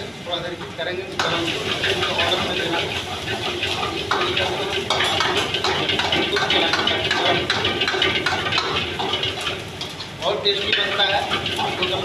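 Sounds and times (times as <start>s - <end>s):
food sizzling in a wok: 0.0s - 12.0s
gas burner rushing: 0.0s - 12.0s
metal ladle scraping a wok: 1.4s - 6.2s.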